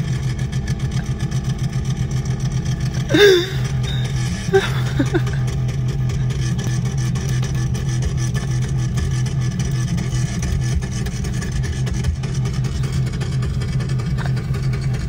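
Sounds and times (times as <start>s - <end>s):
pickup truck engine running steadily: 0.0s - 15.0s.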